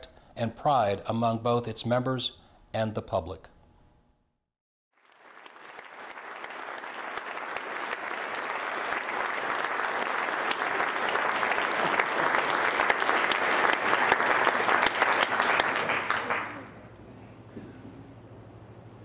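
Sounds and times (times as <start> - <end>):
audience applauding: 5.0 - 16.8.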